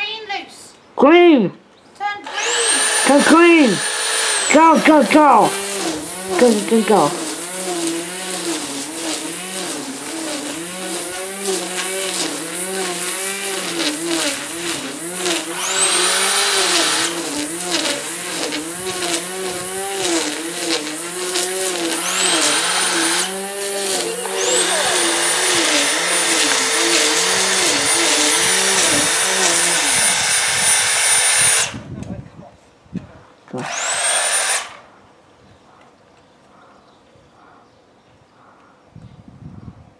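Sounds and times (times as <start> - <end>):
electric grass trimmer cutting grass: 2.2 - 32.0, 33.6 - 34.9.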